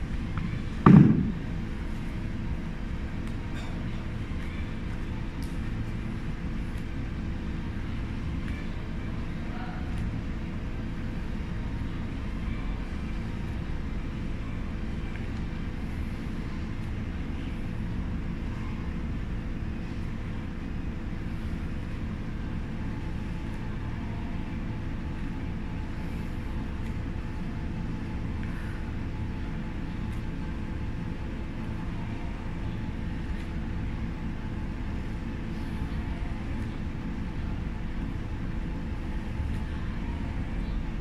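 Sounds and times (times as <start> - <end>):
low rumble: 0.0 - 3.1
constant hum: 0.0 - 41.0.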